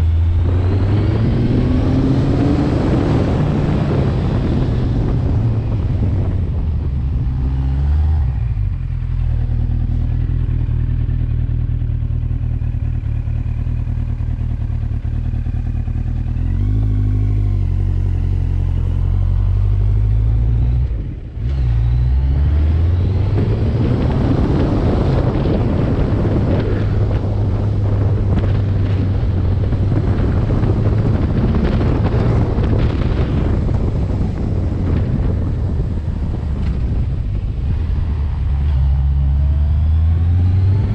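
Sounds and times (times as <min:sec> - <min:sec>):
wind noise rushing: 0:00.0 - 0:09.0, 0:19.0 - 0:40.9
motorcycle engine running: 0:08.2 - 0:40.9.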